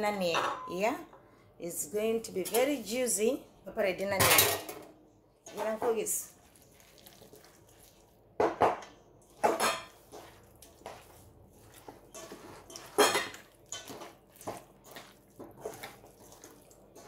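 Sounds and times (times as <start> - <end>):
metal pan clanking and scraping: 9.4 - 10.0, 12.1 - 14.1.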